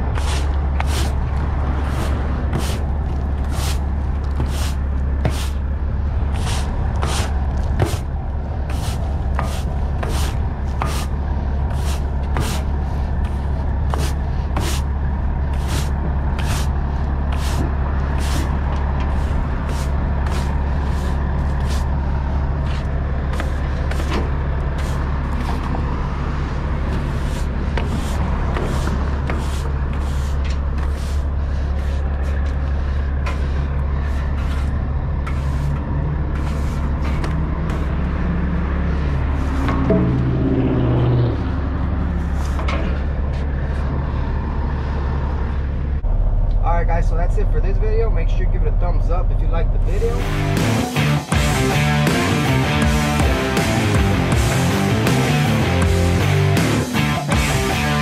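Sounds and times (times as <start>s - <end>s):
broom sweeping wooden deck: 0.0s - 5.6s, 6.2s - 14.9s, 15.5s - 22.0s, 22.6s - 25.8s, 26.9s - 38.0s, 38.9s - 40.2s, 42.1s - 43.8s, 50.6s - 58.0s
diesel engine idling: 0.0s - 58.0s.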